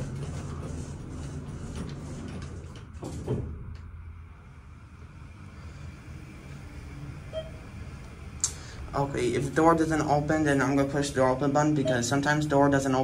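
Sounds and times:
elevator car humming: 0.0 - 13.0
elevator clunk: 11.4 - 12.4.

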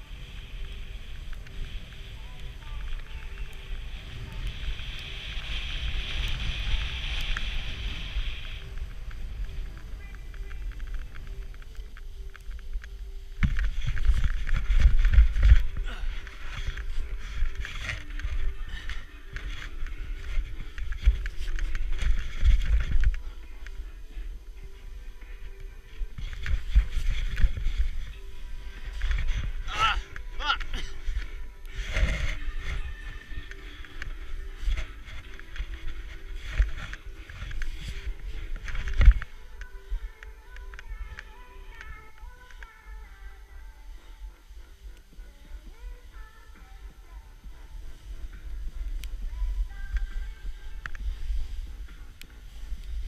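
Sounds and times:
snowboard scraping on snow: 0.0 - 11.2
board scraping through snow: 0.0 - 11.7, 13.4 - 23.9, 25.8 - 39.6, 47.7 - 53.0
wind buffeting microphone: 0.0 - 53.0.

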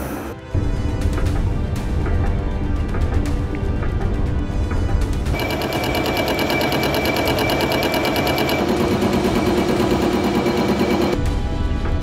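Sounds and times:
metal lathe chattering clatter: 5.4 - 11.2.

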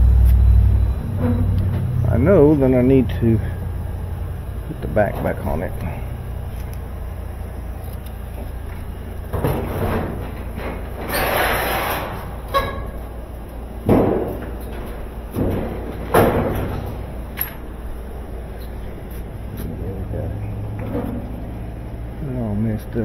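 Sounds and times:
scraping rattle: 7.8 - 13.2
washing machine knocking and thudding: 9.3 - 11.0, 13.8 - 17.2.

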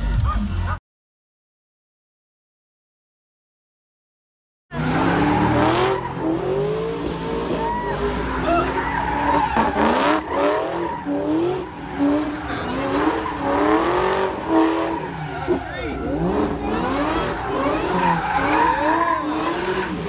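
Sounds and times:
car engine revving: 4.7 - 20.0
tires squealing: 4.7 - 20.0.

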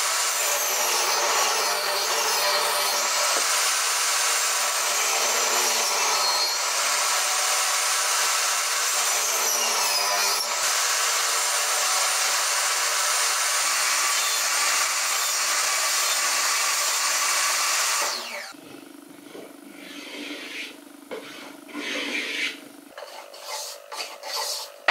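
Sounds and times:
table saw ripping wood: 0.0 - 18.6.

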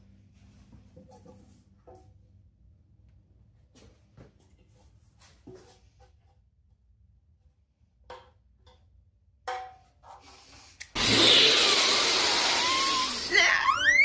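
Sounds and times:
harsh meme sound effect: 11.0 - 14.0.

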